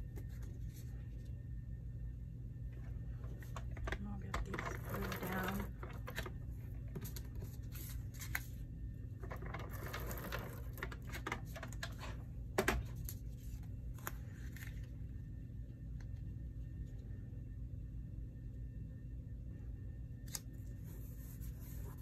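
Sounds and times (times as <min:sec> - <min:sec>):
paper rustling: 0:03.3 - 0:06.3, 0:06.9 - 0:08.6.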